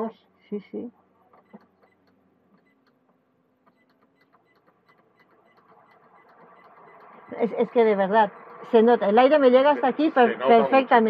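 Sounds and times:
control panel ticks: 0:01.3 - 0:10.0.

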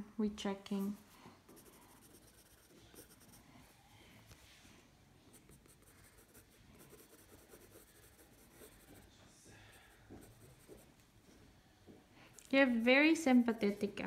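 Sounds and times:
pencil scratching on paper: 0:00.7 - 0:03.4, 0:05.3 - 0:09.2, 0:09.8 - 0:10.9.

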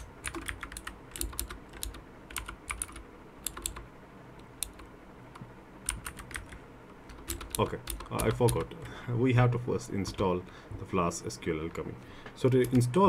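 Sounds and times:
computer keyboard typing: 0:00.0 - 0:04.9, 0:05.8 - 0:09.0, 0:12.4 - 0:13.0.

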